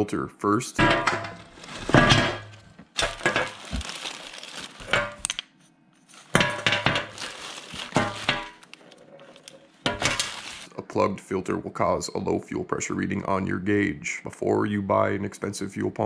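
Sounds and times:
metal canisters clinking on table: 0.8 - 3.6, 6.3 - 7.3, 7.9 - 8.6, 9.8 - 10.6
plastic bags crinkling: 1.4 - 5.4, 6.1 - 10.7.

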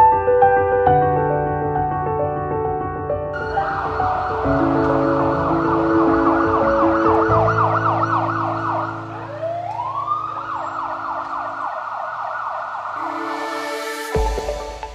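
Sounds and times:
ambulance siren yelping and wailing: 3.4 - 14.2.

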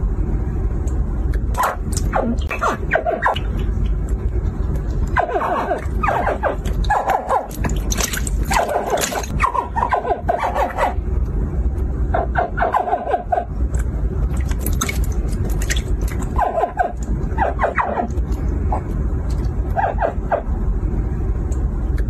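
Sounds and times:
steady low rumble: 0.0 - 22.0
hatchling crocodiles chirping: 5.1 - 7.6.

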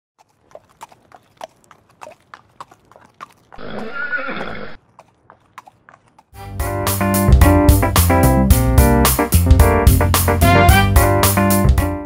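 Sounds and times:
horse hooves clip-clopping: 0.2 - 6.4
horse whinnying: 3.5 - 4.8.

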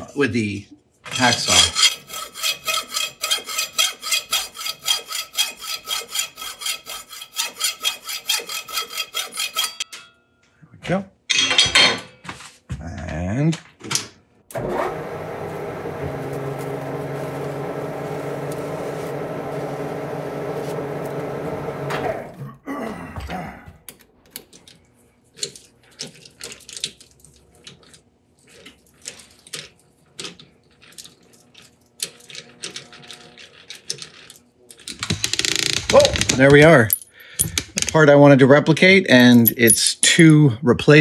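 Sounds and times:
lathe spindle running: 14.5 - 22.4.

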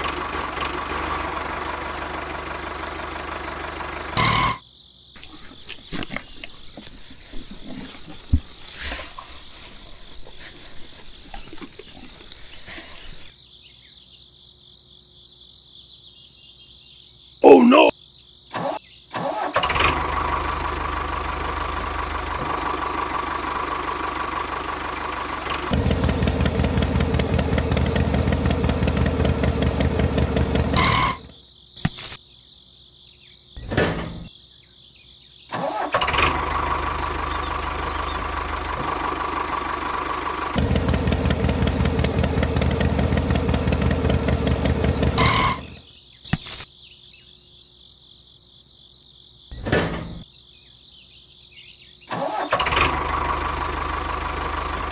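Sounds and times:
small diesel engine chugging: 0.0 - 4.6, 5.2 - 13.3, 18.6 - 31.4, 35.6 - 45.8, 52.1 - 54.9
insects chirping: 4.6 - 19.5, 31.3 - 35.9, 45.3 - 52.4
grass rustling and crackling: 5.2 - 13.3
steady engine whine: 19.7 - 31.3, 36.0 - 45.8.

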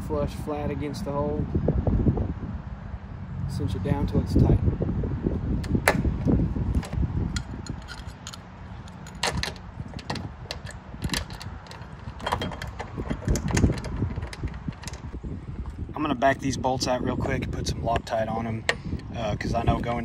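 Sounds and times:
metal clicks and rattles: 6.7 - 15.2.

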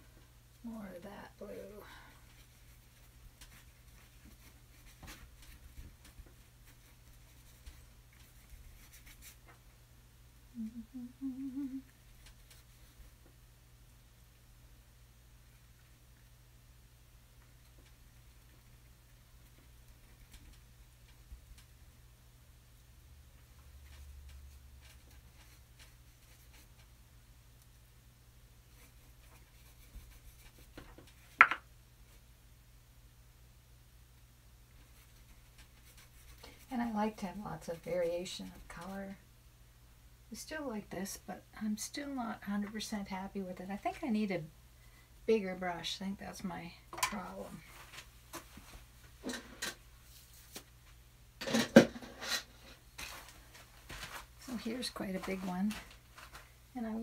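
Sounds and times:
paintbrush strokes on canvas: 1.2 - 9.6, 34.8 - 39.0
woman humming: 10.5 - 11.9.

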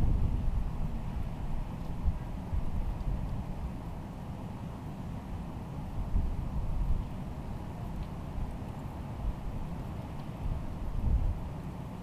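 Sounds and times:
wind buffeting microphone: 0.0 - 3.8, 5.9 - 8.6, 9.2 - 12.0.

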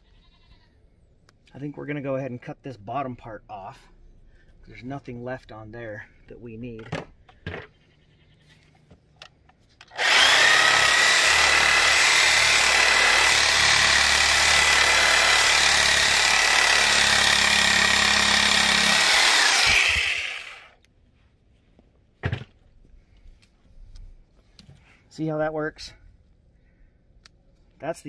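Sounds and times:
reciprocating saw cutting bone: 9.9 - 20.7.

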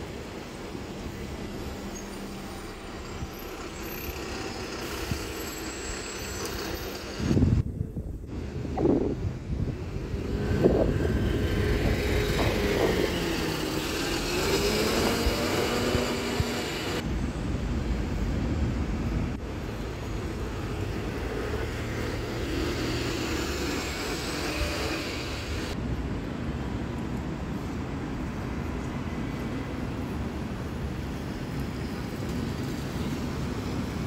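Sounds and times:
diesel bus engine running: 0.7 - 7.6, 8.3 - 17.0.

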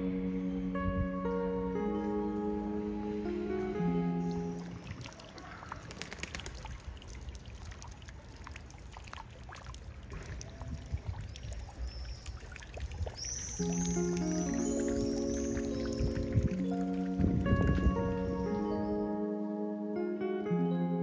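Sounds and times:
fountain water trickling and dripping: 4.2 - 18.9.

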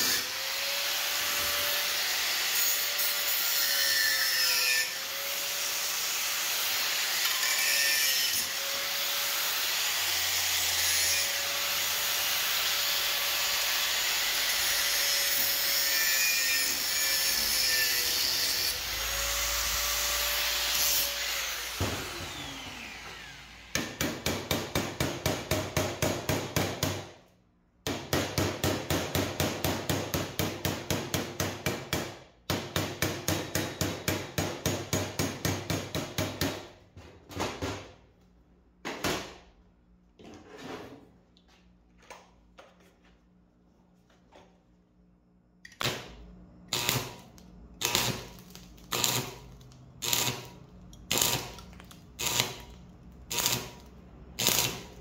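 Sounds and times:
angle grinder cutting steel: 50.0 - 51.6, 52.2 - 52.7, 53.3 - 55.0.

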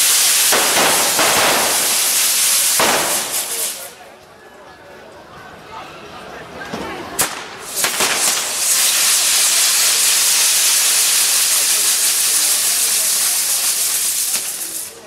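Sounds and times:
firework sharp cracks: 0.0 - 4.0, 7.2 - 15.0
fireworks hissing: 0.0 - 4.0, 7.2 - 15.0.

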